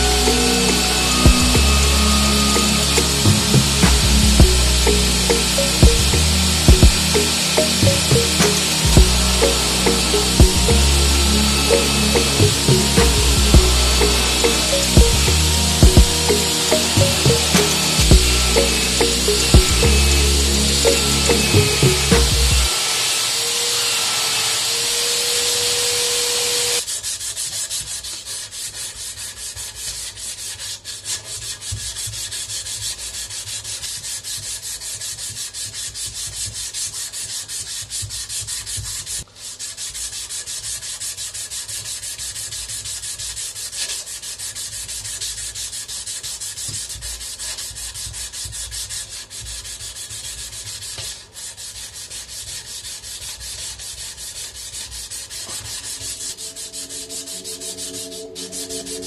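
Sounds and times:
belt sander whining: 0.0s - 26.8s
sandpaper rubbing on wood: 0.0s - 59.0s.

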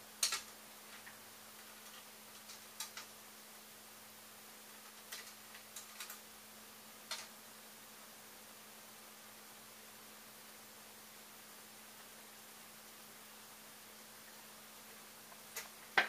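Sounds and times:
faint steady hum: 0.0s - 16.0s
plastic parts clicking and tapping: 0.2s - 1.2s, 1.8s - 3.1s.

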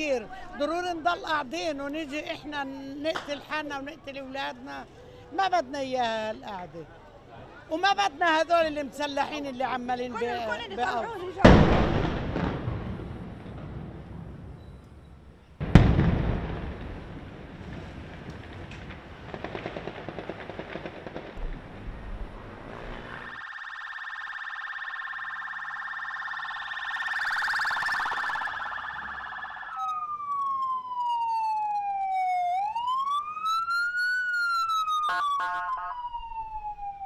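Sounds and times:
loud gunshot: 11.4s - 13.0s, 15.6s - 17.2s
ambulance siren: 22.9s - 37.0s.

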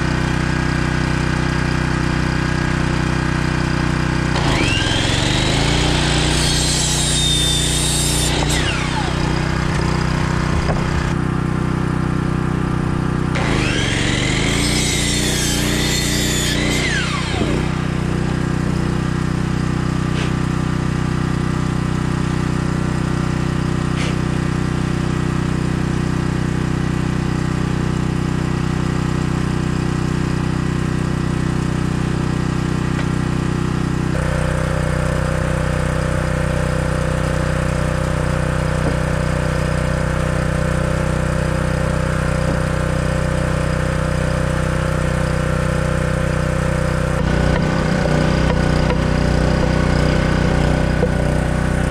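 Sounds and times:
generator engine running: 0.0s - 51.9s
saw blade winding down: 4.2s - 11.2s, 13.3s - 19.3s.

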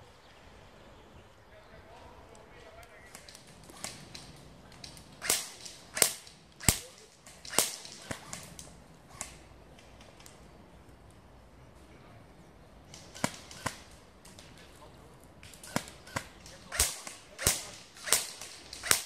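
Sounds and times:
airsoft gun shots: 3.1s - 9.5s, 12.9s - 14.4s, 15.4s - 19.0s.

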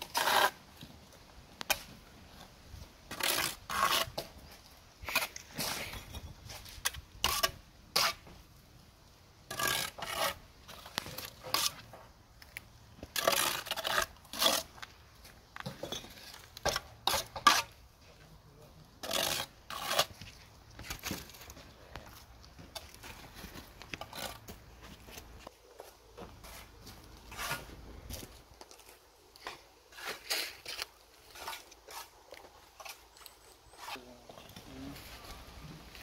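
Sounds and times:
trowel scraping mortar: 0.0s - 0.6s, 3.1s - 8.3s, 9.5s - 12.0s, 13.0s - 14.9s, 15.6s - 17.8s, 19.0s - 21.6s, 22.7s - 25.3s, 26.3s - 27.7s, 29.4s - 36.0s.

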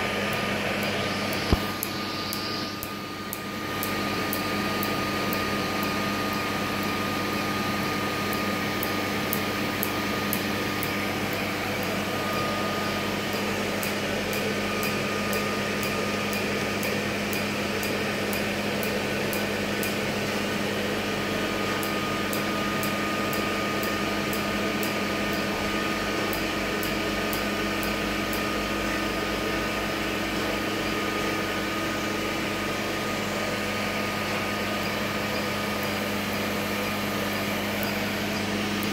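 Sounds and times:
laser machine hum: 0.0s - 38.9s
laser pulse ticks: 0.3s - 12.1s, 12.8s - 20.1s, 21.8s - 25.6s, 26.2s - 28.5s, 37.3s - 38.9s.

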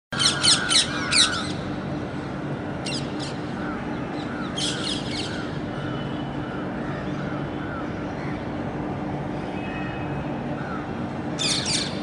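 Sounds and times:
parrots squawking: 0.2s - 1.6s.

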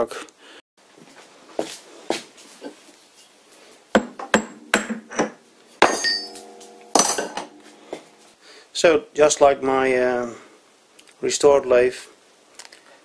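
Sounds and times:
metal knocks and clinks: 4.2s - 8.2s
metallic ringing: 4.3s - 8.3s.

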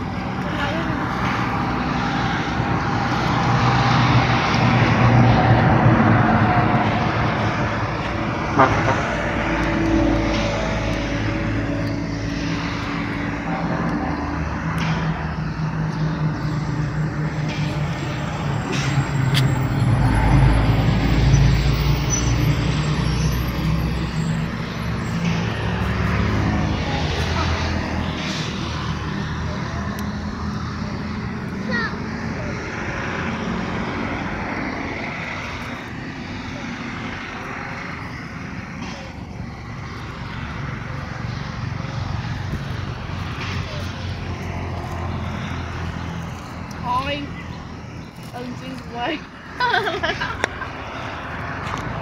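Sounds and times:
motor engine humming: 0.0s - 52.0s
steady rushing noise: 0.0s - 52.0s.

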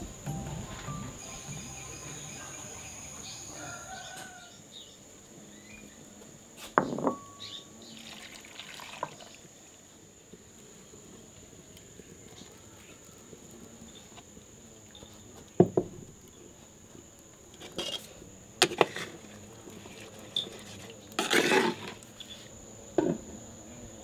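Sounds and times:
insect drone: 0.0s - 24.0s
pots and lids knocking: 6.8s - 7.4s
pots clattering scrape: 17.6s - 19.2s, 19.8s - 22.4s.

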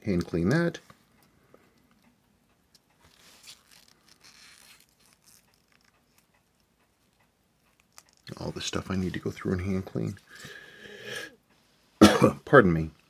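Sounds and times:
faint soft rustles and scrapes: 3.0s - 6.3s, 7.9s - 10.3s.

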